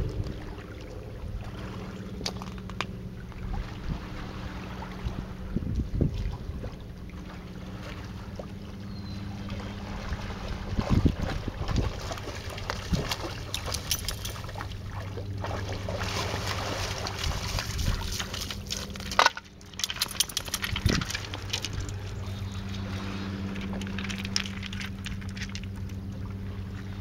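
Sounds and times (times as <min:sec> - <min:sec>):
steady low hum: 0:00.0 - 0:27.0
water splashing and sloshing: 0:00.0 - 0:27.0
paws crunching on pebbles: 0:16.0 - 0:26.1.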